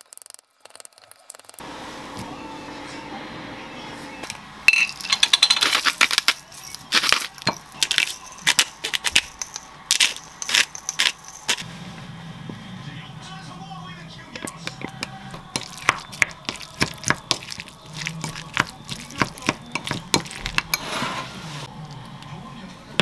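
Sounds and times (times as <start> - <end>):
chopsticks clacking against glass bowl: 14.4 - 20.8.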